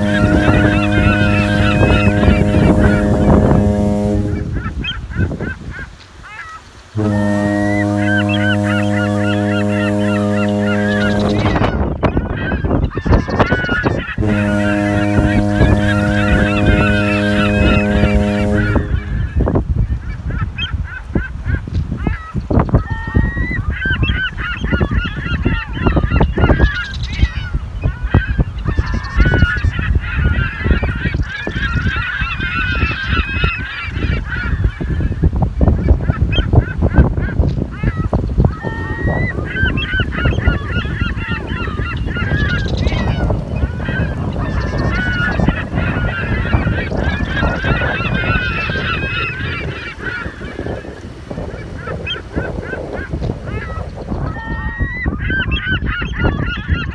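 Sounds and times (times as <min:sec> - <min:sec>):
steady low horn: 0:00.0 - 0:04.8, 0:06.9 - 0:12.1, 0:14.1 - 0:19.6
flock of birds calling: 0:00.0 - 0:56.9
wind on microphone: 0:00.0 - 0:56.9.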